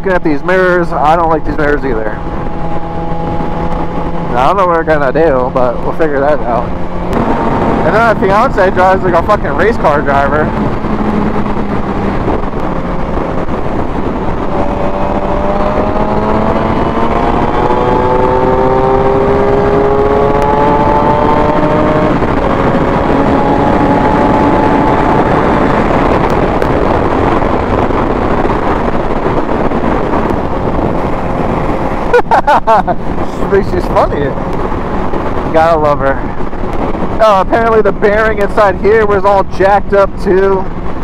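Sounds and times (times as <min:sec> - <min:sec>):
motorcycle engine accelerating: 0:00.0 - 0:41.0
wind and road rush: 0:00.0 - 0:41.0.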